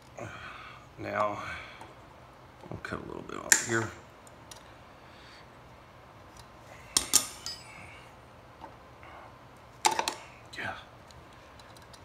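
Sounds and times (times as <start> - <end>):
light metal clinks: 7.0 - 7.8.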